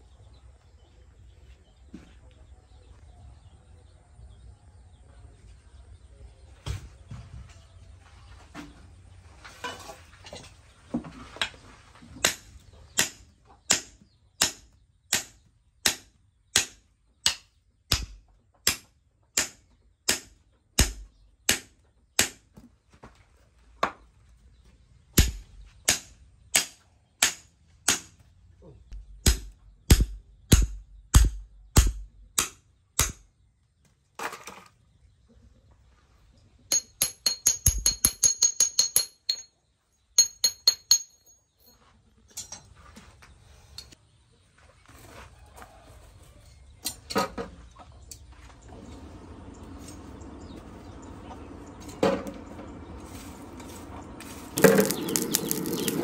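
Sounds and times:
hammer striking steel bar: 13.0s - 22.4s, 25.2s - 28.2s, 29.0s - 33.2s, 36.7s - 39.5s.

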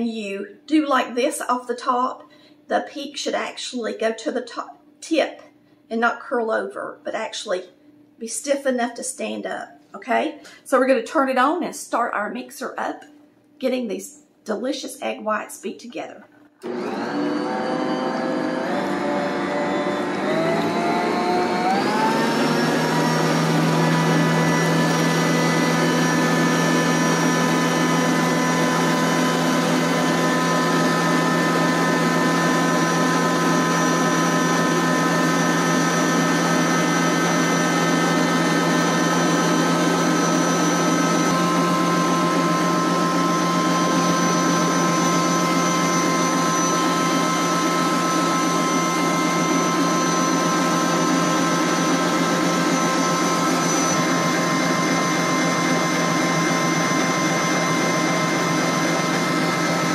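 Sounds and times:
stand mixer motor whining: 16.6s - 59.9s.

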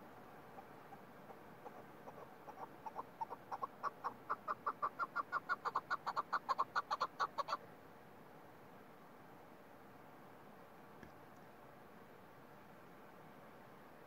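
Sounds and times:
partridge clucking calls: 0.0s - 7.6s.

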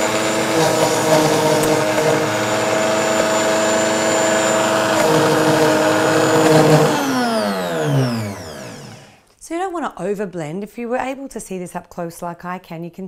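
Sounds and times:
blender motor running: 0.0s - 9.2s
motor spinning down: 0.0s - 9.2s.

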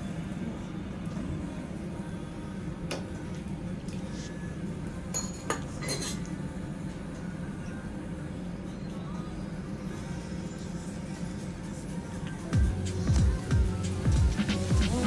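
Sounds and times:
dishes and utensils clinking: 5.1s - 6.4s
steady low hum: 6.3s - 15.0s.

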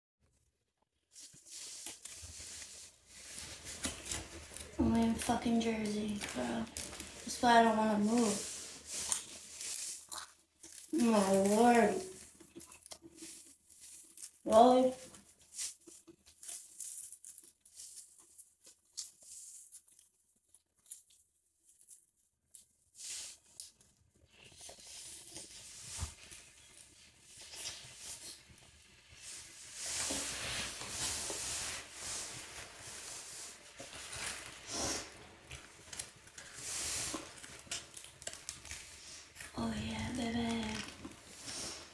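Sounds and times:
paper plates crinkling: 1.1s - 22.0s, 23.0s - 41.9s
chewing: 8.6s - 14.4s.

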